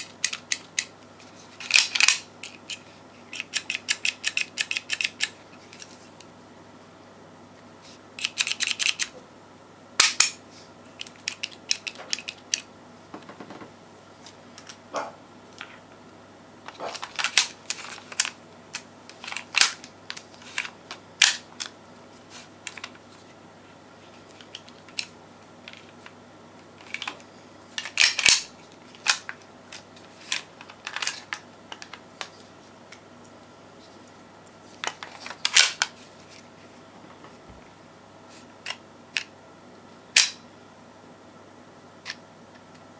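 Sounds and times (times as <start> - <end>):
pistol mechanism clicks: 40.2 - 40.4.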